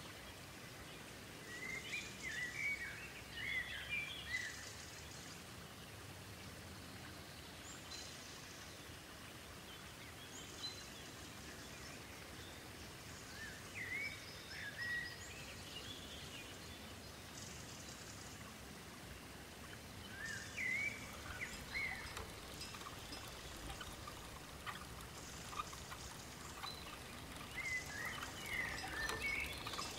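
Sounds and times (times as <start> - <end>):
soft hiss: 0.0 - 29.9
birds chirping: 20.0 - 29.9.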